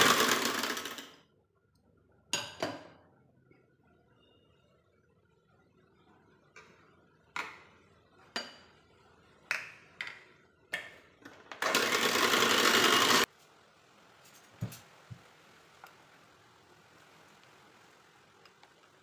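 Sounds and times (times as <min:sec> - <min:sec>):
electric hand mixer running: 0:00.0 - 0:01.1, 0:11.6 - 0:13.3.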